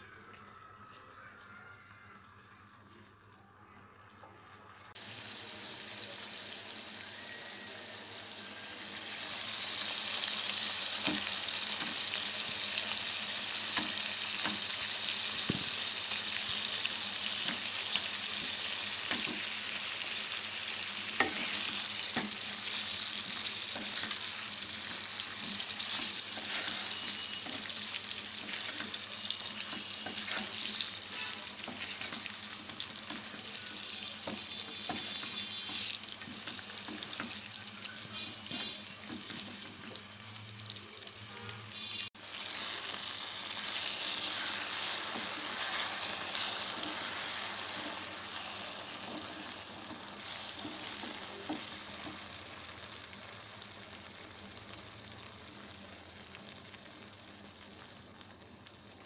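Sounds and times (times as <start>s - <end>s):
potatoes sizzling in a pan: 5.0s - 59.0s
spatula scraping a pan: 21.2s - 22.4s, 25.3s - 27.8s, 29.6s - 32.4s, 43.6s - 51.8s.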